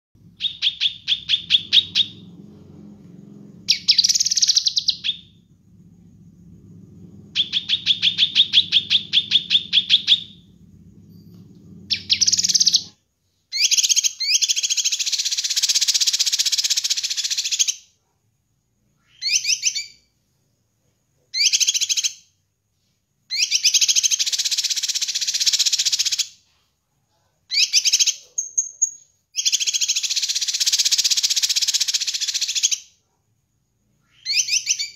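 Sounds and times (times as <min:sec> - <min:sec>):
bird singing trills and warbles: 0:00.4 - 0:02.6, 0:03.6 - 0:05.4, 0:07.3 - 0:10.5, 0:11.9 - 0:13.0
low hum: 0:01.3 - 0:04.1, 0:05.2 - 0:12.9.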